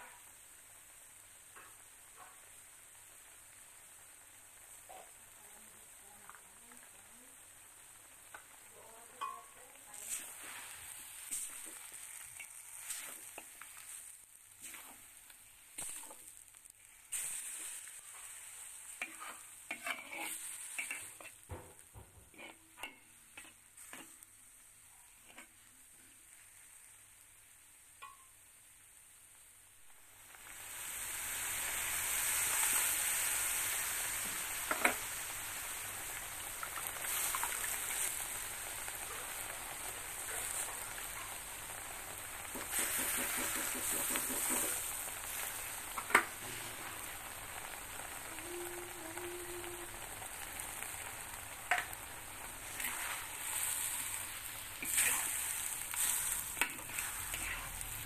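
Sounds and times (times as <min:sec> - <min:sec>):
food sizzling: 0:00.0 - 0:58.0
spatula scraping wok: 0:09.2 - 0:24.4, 0:25.0 - 0:26.7, 0:31.8 - 0:35.4, 0:36.1 - 0:47.7, 0:50.2 - 0:58.0.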